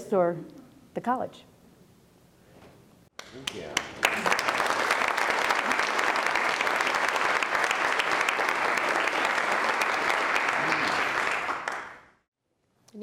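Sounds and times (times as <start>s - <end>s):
audience applauding: 3.2s - 12.2s.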